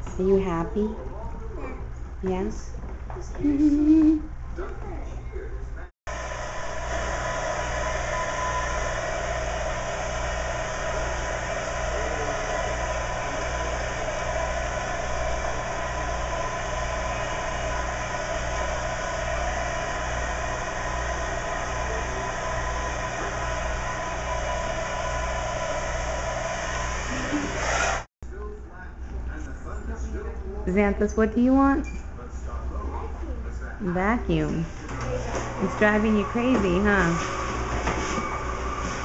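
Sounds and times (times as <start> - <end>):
hair dryer running: 6.1 - 28.1, 34.3 - 39.0.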